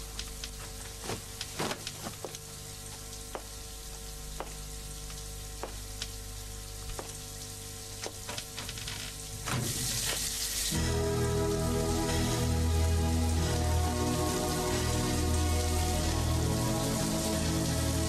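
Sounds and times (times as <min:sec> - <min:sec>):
water drips: 0:00.0 - 0:12.0
shower water running: 0:00.0 - 0:18.0.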